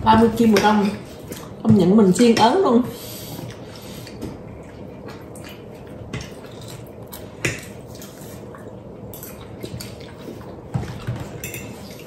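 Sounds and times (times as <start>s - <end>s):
cutlery clinking on plates: 10.9s - 12.0s.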